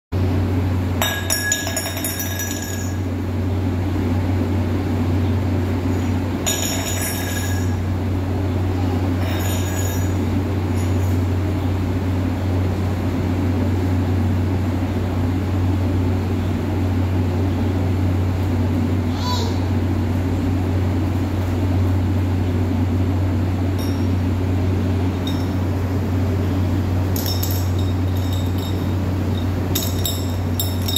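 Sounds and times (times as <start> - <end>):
fan motor hum: 0.1 - 30.9
steel cup clinking on stone floor: 1.0 - 3.0, 6.5 - 7.8, 9.2 - 10.2, 27.2 - 30.9.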